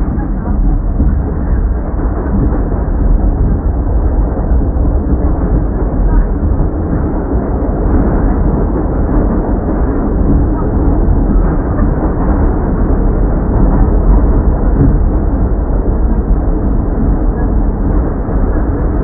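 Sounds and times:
subway train rumbling: 0.0s - 19.0s.

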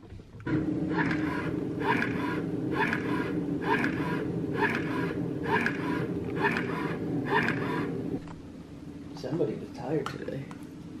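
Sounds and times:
breast pump motor hum: 0.4s - 8.4s
rhythmic suction cycle: 0.5s - 8.2s.

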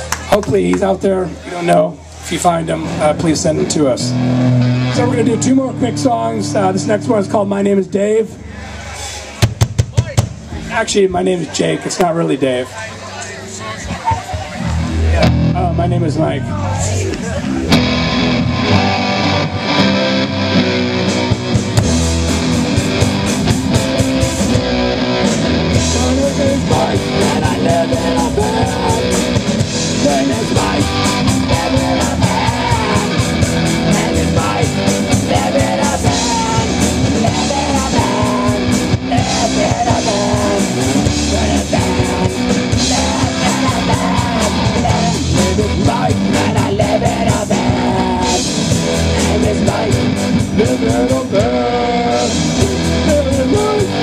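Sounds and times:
electric guitars: 0.0s - 9.5s, 12.6s - 54.0s
bass guitar: 0.0s - 54.0s
drum kit beat: 9.4s - 10.6s, 17.4s - 54.0s
person singing into microphone: 25.8s - 54.0s.

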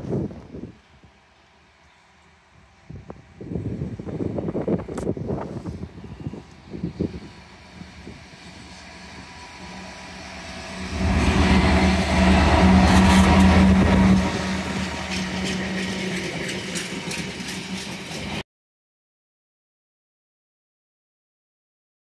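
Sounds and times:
locomotive engine drone: 0.1s - 18.4s
wagons rumbling: 7.4s - 18.4s
wheels clicking over rails: 12.4s - 18.4s.

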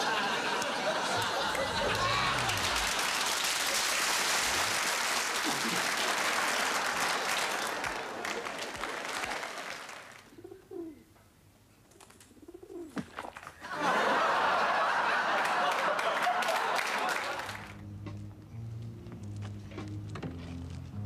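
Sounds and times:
audience laughter: 0.0s - 9.8s, 13.6s - 17.8s
audience applause: 0.0s - 10.3s, 13.7s - 17.8s
pigeon cooing: 10.3s - 11.0s, 12.3s - 13.0s.

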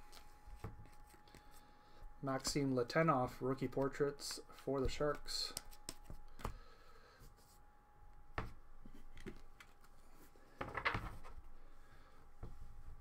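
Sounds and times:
cards clicking and sliding: 5.2s - 6.6s.

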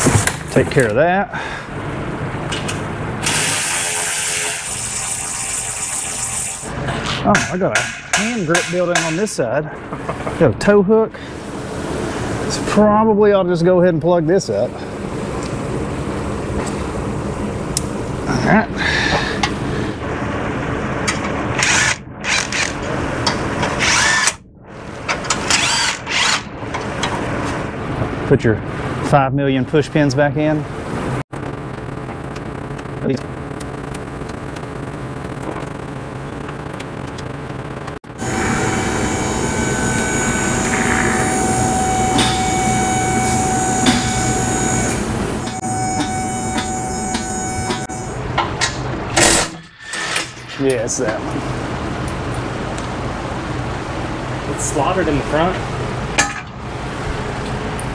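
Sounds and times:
mechanical hum with high whine: 0.0s - 57.9s
cordless drill whining: 38.2s - 48.0s.

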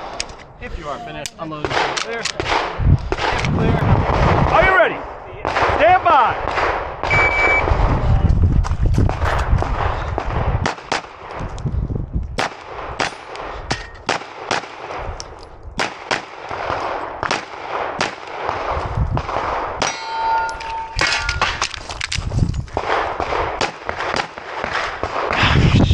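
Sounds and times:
pistol shots: 12.4s - 15.2s, 15.8s - 20.0s, 22.8s - 25.4s
metallic ring: 19.8s - 21.6s.

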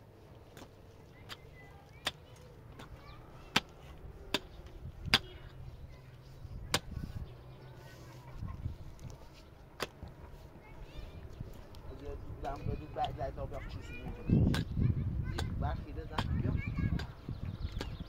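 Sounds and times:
hand tool striking hard material: 0.5s - 5.4s, 6.7s - 7.0s, 9.8s - 10.0s, 15.3s - 17.2s.

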